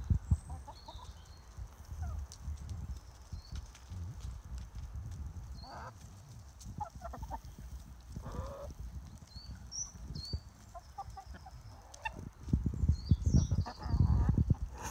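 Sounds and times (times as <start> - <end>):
hens clucking: 5.6 - 8.8, 10.6 - 12.3, 13.4 - 14.9.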